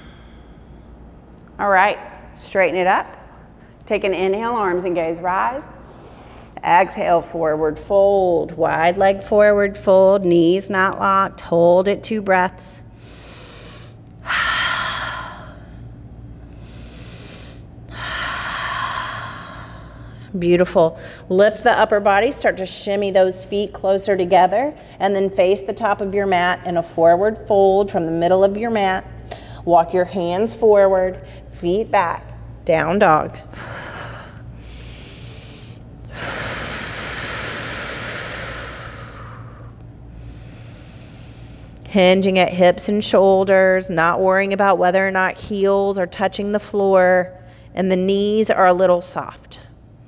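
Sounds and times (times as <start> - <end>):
woman breathing deeply: 0.0 - 1.0, 5.7 - 6.6, 12.9 - 20.3, 20.9 - 21.3, 29.2 - 29.7, 33.5 - 41.8.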